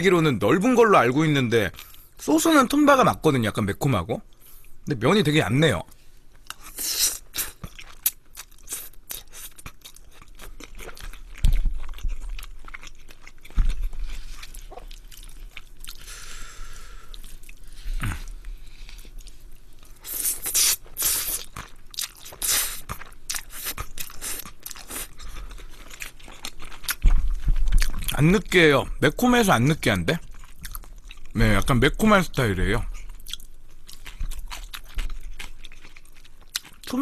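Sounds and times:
slurping and chewing spaghetti: 0:06.5 - 0:28.3, 0:33.0 - 0:37.0.

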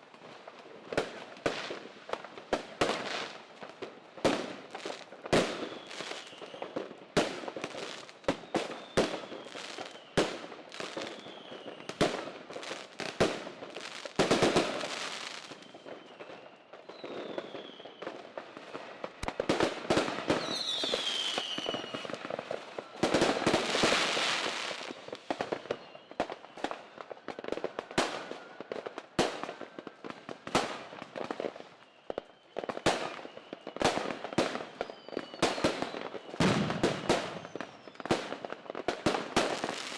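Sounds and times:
firework crackling: 0:00.1 - 0:39.9
high falling firework whistles: 0:04.5 - 0:06.8, 0:07.5 - 0:28.7, 0:30.4 - 0:39.9
firework bangs: 0:35.3 - 0:39.9.

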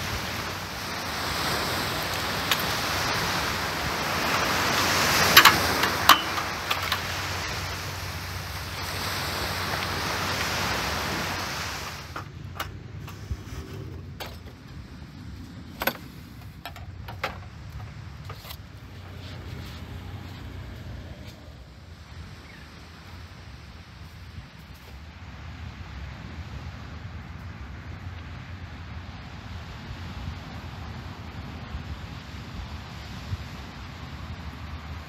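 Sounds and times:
surf washing onto beach: 0:00.0 - 0:35.0
beach chair and umbrella clicks: 0:00.2 - 0:14.8, 0:15.5 - 0:21.6.

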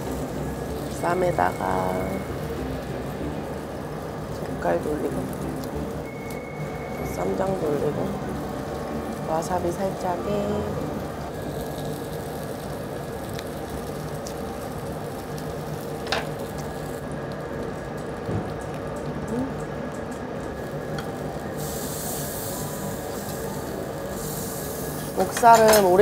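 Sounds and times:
meat sizzling on grill: 0:00.0 - 0:26.0.

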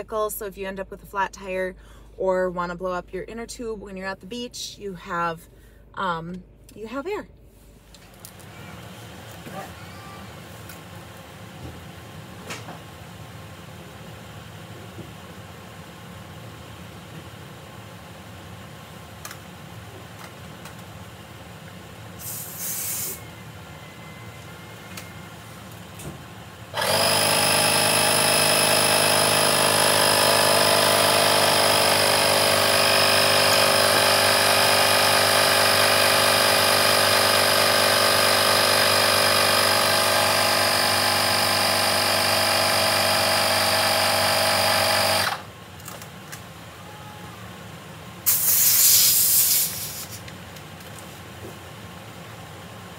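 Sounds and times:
tyre inflator humming: 0:22.1 - 0:23.3, 0:26.7 - 0:45.5, 0:48.2 - 0:50.3
air hiss: 0:22.2 - 0:23.2, 0:48.3 - 0:50.2.

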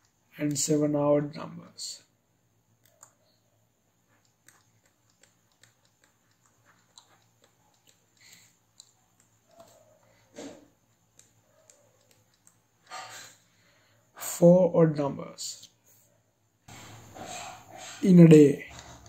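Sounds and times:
stylus clicking on drawing tablet: 0:02.8 - 0:03.5, 0:04.1 - 0:13.3.

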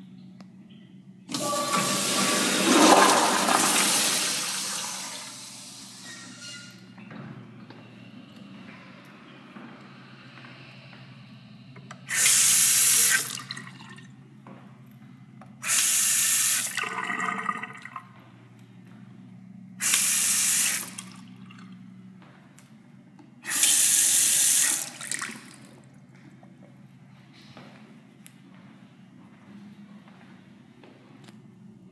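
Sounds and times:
faucet water rushing into sink: 0:01.3 - 0:06.2, 0:12.1 - 0:13.9, 0:15.6 - 0:17.9, 0:19.8 - 0:21.2, 0:23.5 - 0:25.7.

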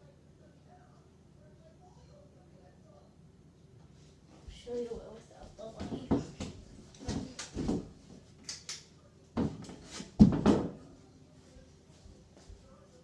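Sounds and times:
ceiling fan humming: 0:00.0 - 0:13.0
knocks and thumps on chair: 0:05.8 - 0:08.0, 0:09.4 - 0:10.8.

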